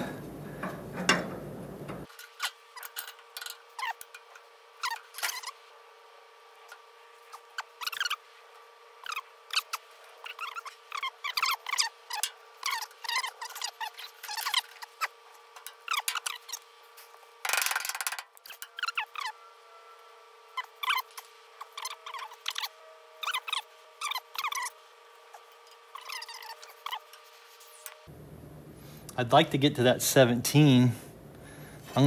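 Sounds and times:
rubber bushing squeaking: 0:09.0 - 0:15.2, 0:20.6 - 0:27.2.

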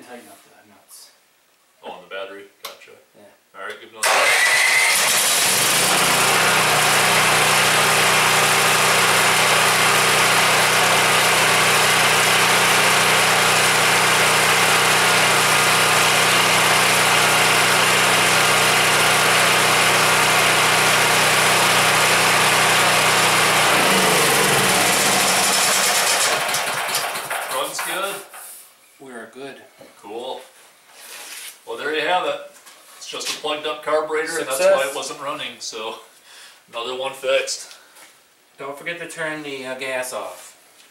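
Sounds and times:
generator engine running: 0:04.0 - 0:27.5
generator engine winding down: 0:04.0 - 0:27.5.

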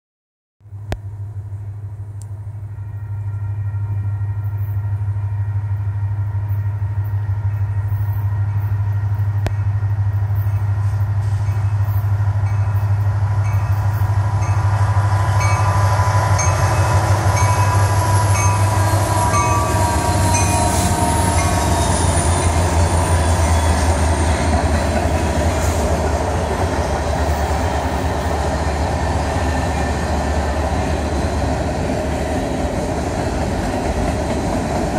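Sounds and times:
locomotive engine rumble: 0:00.6 - 0:34.9.

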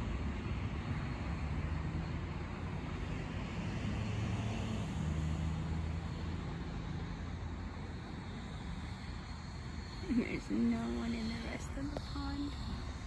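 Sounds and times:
low engine drone: 0:07.1 - 0:13.0.

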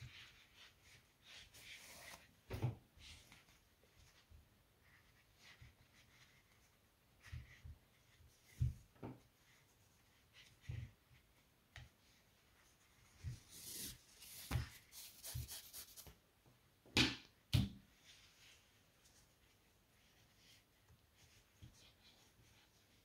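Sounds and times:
cord rustling through crochet stitches: 0:00.0 - 0:16.2, 0:17.9 - 0:23.0.

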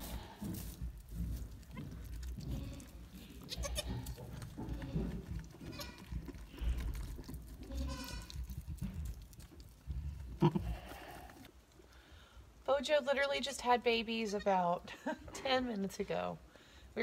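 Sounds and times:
goat kids bleating: 0:01.7 - 0:06.1, 0:07.6 - 0:08.4, 0:10.4 - 0:11.5.

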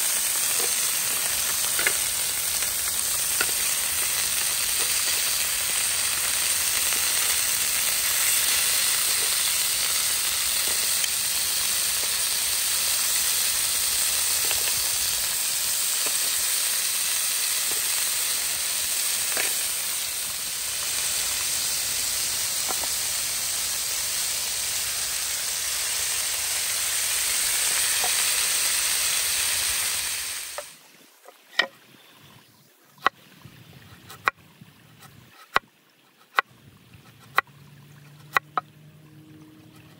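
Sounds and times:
meat sizzling on a grill pan: 0:00.0 - 0:30.8.

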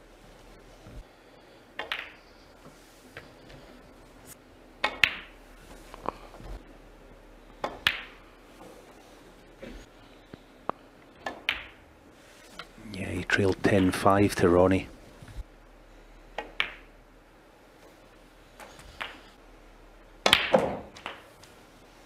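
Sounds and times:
snooker balls clicking: 0:01.8 - 0:02.4, 0:04.8 - 0:06.2, 0:07.6 - 0:08.8, 0:11.0 - 0:11.8, 0:13.4 - 0:14.4, 0:16.4 - 0:16.9, 0:18.6 - 0:19.4, 0:20.2 - 0:21.5.

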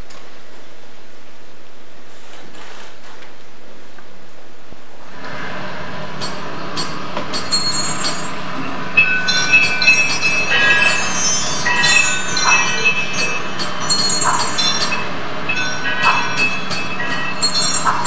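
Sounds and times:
metallic ringing and squealing tones: 0:06.2 - 0:18.0.

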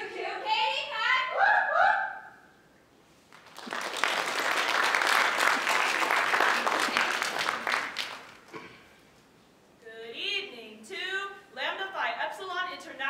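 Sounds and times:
audience applauding: 0:03.3 - 0:08.6.

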